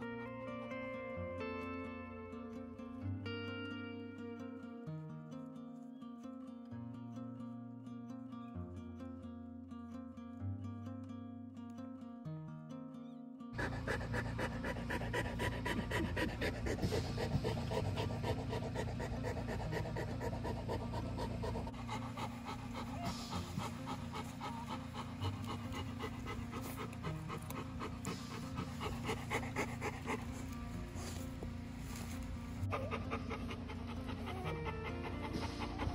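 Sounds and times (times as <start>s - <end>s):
dog panting rapidly: 13.6s - 35.9s.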